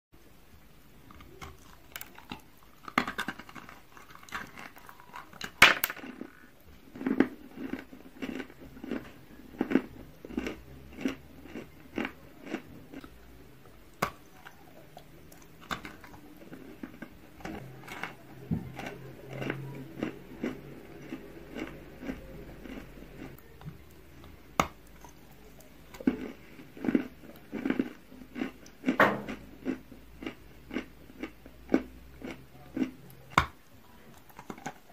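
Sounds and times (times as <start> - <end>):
chewing: 1.1 - 34.9.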